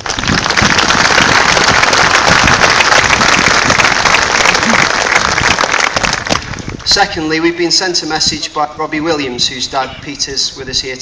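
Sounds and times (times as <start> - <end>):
crowd applauding: 0.0 - 6.9.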